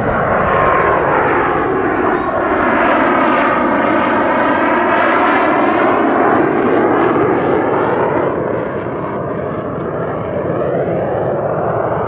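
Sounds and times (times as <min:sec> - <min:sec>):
jet whine rising in pitch: 0:00.0 - 0:07.2
jet roar: 0:00.0 - 0:12.0.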